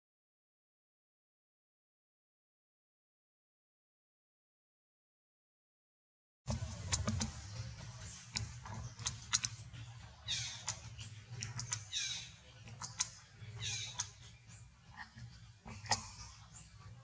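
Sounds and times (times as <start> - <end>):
low steady rumble: 6.5 - 17.0
sharp clicks: 12.7 - 13.2.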